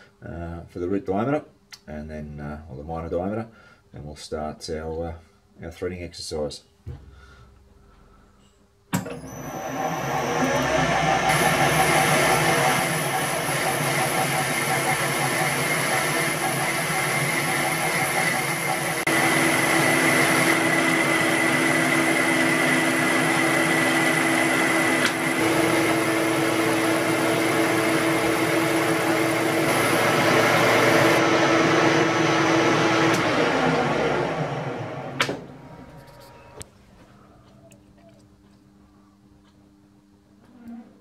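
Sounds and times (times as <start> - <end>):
metal lathe whining: 9.0 - 36.6.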